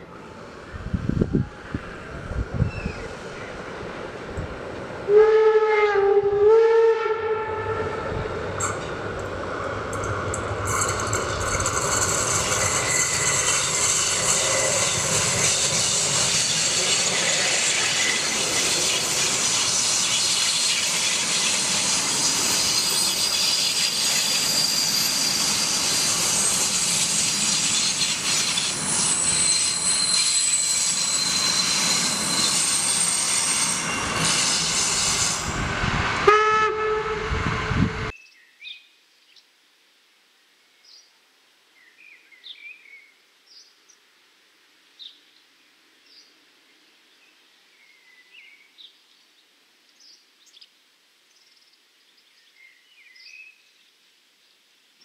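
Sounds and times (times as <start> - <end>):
steam train passing: 0.0 - 38.2
thin high tones: 9.9 - 35.6.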